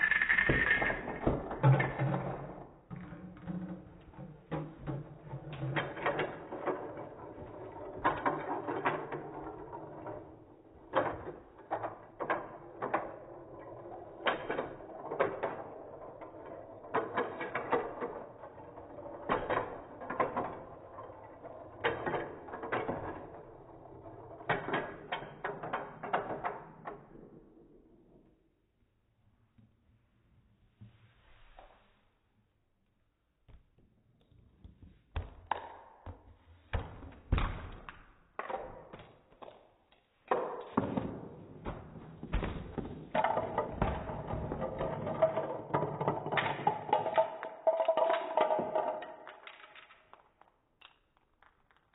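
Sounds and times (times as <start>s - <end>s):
toy cars clattering down ramp: 0.0s - 2.7s, 4.5s - 27.4s, 43.1s - 51.9s.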